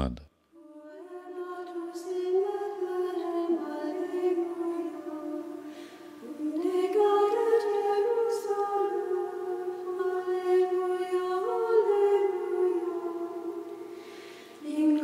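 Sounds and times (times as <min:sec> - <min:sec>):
choir singing long notes: 0:00.0 - 0:14.0.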